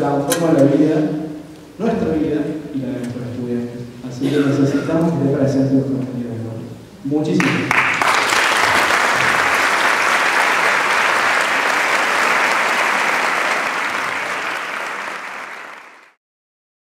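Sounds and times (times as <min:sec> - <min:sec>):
audience applauding: 0:07.4 - 0:16.2.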